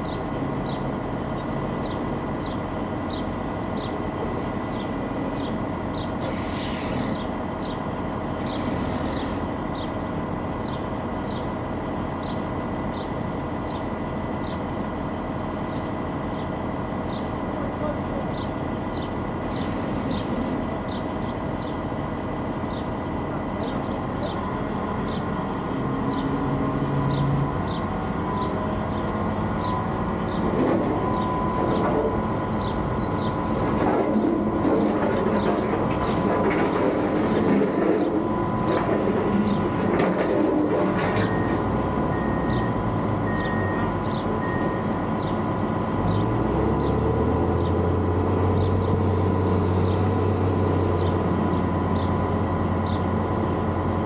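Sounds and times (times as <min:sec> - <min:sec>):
diesel machinery running: 0:00.0 - 0:54.0
forklift engine driving up: 0:00.0 - 0:54.0.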